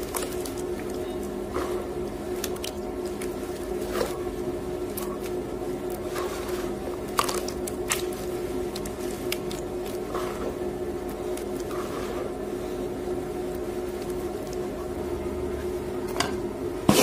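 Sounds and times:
wet clicks and splats: 0:00.0 - 0:01.4, 0:02.3 - 0:03.8, 0:07.0 - 0:10.1, 0:11.0 - 0:11.7
washing machine humming: 0:00.0 - 0:17.0
wet paste squished between hands: 0:02.2 - 0:10.1.

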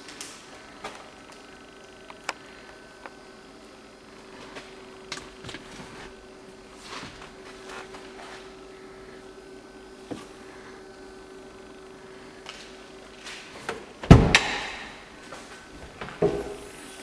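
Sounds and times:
steady hum: 0:00.0 - 0:17.0
rustling in a car cabin: 0:04.4 - 0:08.6.

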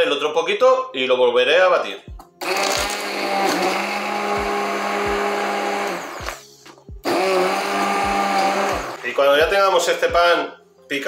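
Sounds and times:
hand blender running: 0:02.4 - 0:06.4, 0:07.0 - 0:09.0.

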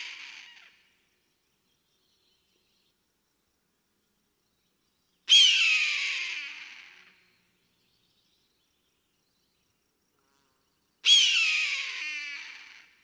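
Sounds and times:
eagle scream: 0:00.0 - 0:00.8, 0:05.3 - 0:07.2, 0:11.0 - 0:13.0.

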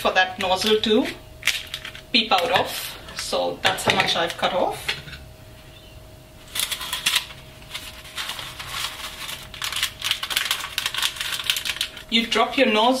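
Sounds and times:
paper piping bag crinkling: 0:06.5 - 0:12.4.

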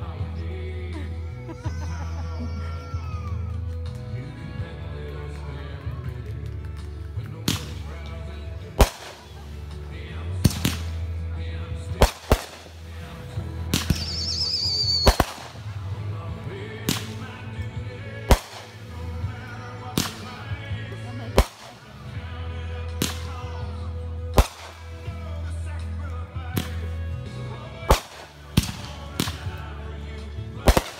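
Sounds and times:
fireworks bangs: 0:06.5 - 0:11.2, 0:11.9 - 0:26.0, 0:27.8 - 0:29.7, 0:30.6 - 0:30.9.

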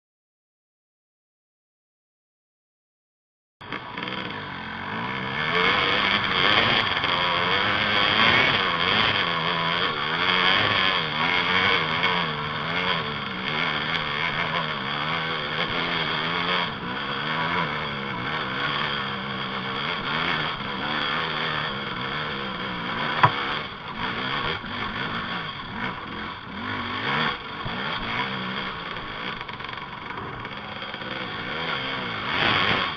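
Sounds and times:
dirt bike engine: 0:03.6 - 0:32.9
sharp knock: 0:23.2 - 0:23.4.

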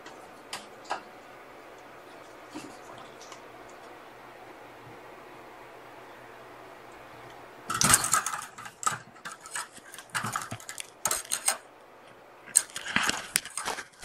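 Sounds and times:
faint steady hum: 0:00.0 - 0:14.0
kitten claws scratching wire: 0:07.7 - 0:11.6, 0:12.5 - 0:14.0.

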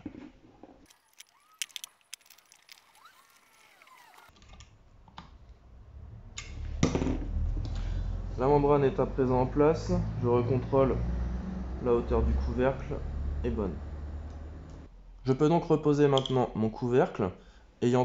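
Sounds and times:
small metal parts clicking: 0:00.9 - 0:04.3.

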